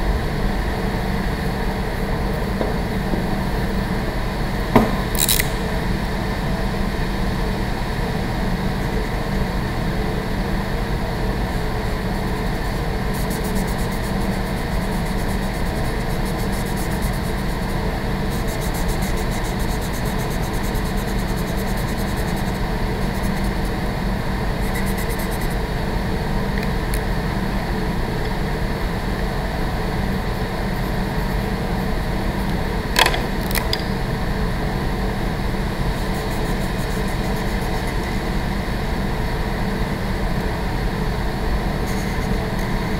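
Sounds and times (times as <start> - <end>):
ventilation system hum: 0.0 - 42.9
marker scratching on paper: 24.6 - 25.6.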